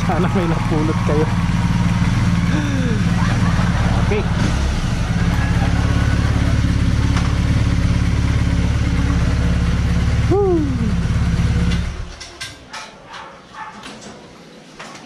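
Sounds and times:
motorcycle engine idling: 0.0s - 12.3s
dog barking: 13.0s - 13.9s.

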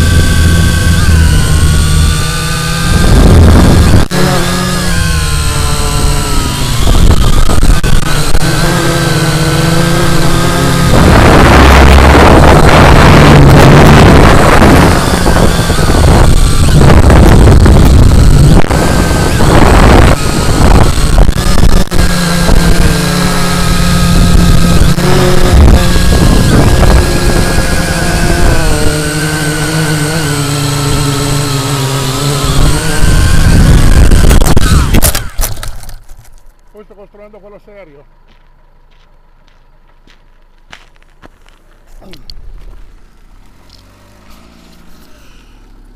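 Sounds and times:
propeller and wind rush: 0.0s - 35.7s
drone crashing on gravel: 0.0s - 36.8s, 38.2s - 45.0s
electric motors buzzing hum: 0.0s - 36.8s.

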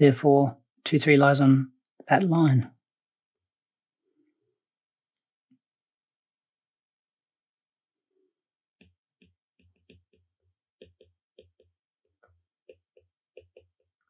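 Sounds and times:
stylus tapping on glass screen: 8.8s - 13.9s.

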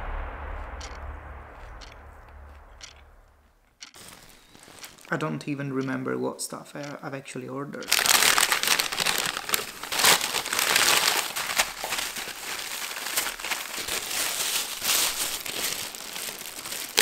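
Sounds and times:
plastic bags crinkling: 4.0s - 5.2s, 7.8s - 17.0s.

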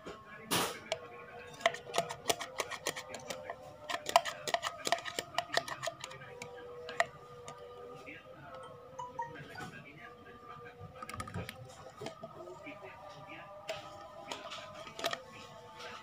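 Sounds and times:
background music: 0.0s - 16.0s
plastic cup and packaging clicking: 0.8s - 7.7s, 11.0s - 12.4s, 13.6s - 15.3s.

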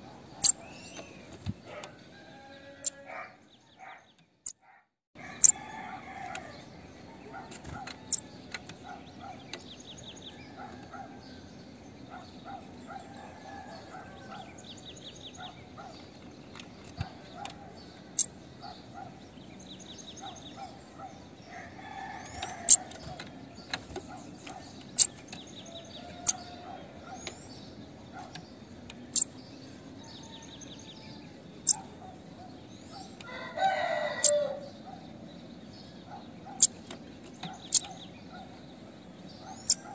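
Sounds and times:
buzzy hissing bird trills: 0.0s - 1.3s, 2.2s - 3.1s, 5.3s - 16.0s, 17.8s - 23.0s, 24.1s - 35.2s, 35.8s - 39.9s
bird high sharp chips: 26.1s - 26.5s.

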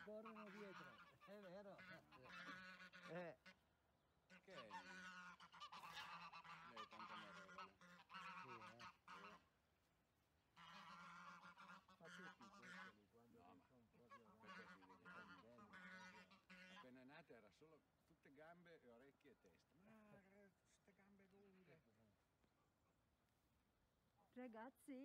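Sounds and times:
geese honking and cackling: 0.0s - 9.6s, 10.5s - 17.2s.

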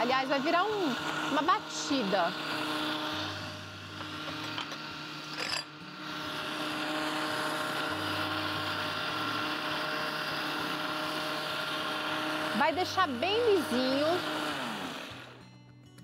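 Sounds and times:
blender motor running: 0.0s - 15.4s.

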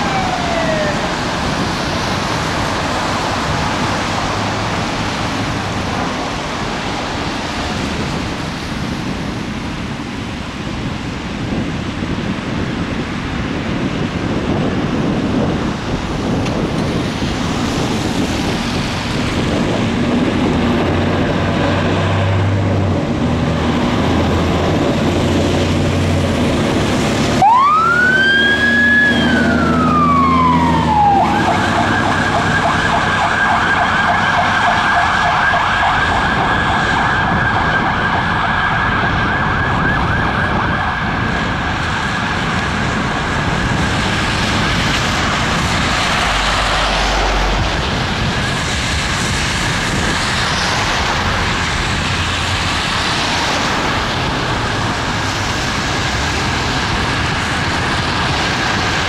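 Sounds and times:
siren wailing and warbling: 0.0s - 1.8s, 27.0s - 41.6s
fire truck engine running: 14.4s - 59.0s.

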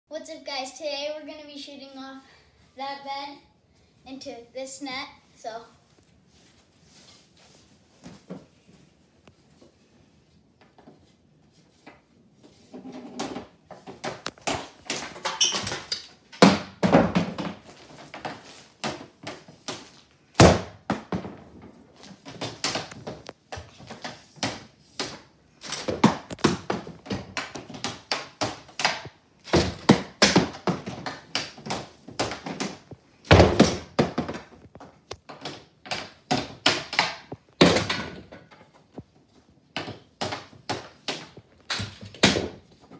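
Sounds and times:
hockey stick hitting puck: 13.2s - 21.4s, 22.1s - 39.0s, 39.7s - 42.9s
pucks striking hard surfaces: 13.2s - 39.1s, 39.7s - 42.9s.

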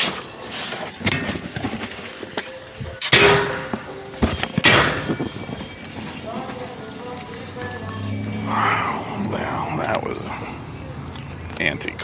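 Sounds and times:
handling knocks and rustles: 0.0s - 3.1s, 3.7s - 6.8s.

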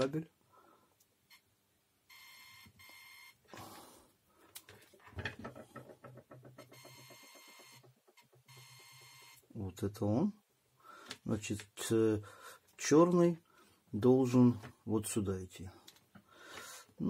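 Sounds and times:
multimeter continuity beeps: 2.1s - 3.4s, 6.6s - 9.4s.

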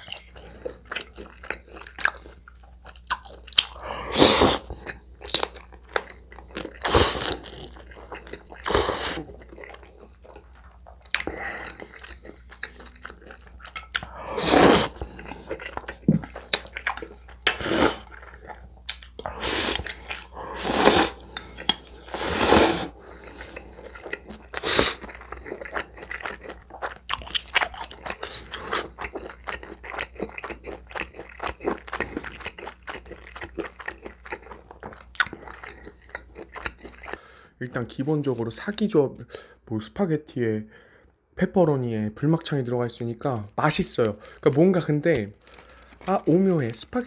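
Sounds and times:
wet chewing with mouth clicks: 0.0s - 14.2s, 14.8s - 22.2s, 22.9s - 37.2s
person slurping noodles: 3.6s - 5.0s, 6.8s - 9.4s, 14.0s - 16.6s, 17.5s - 18.2s, 19.2s - 25.2s.

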